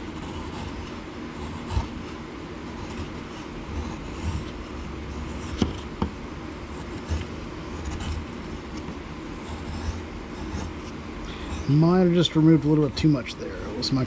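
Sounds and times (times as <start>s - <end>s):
knife scraping wood: 9.5s - 11.8s.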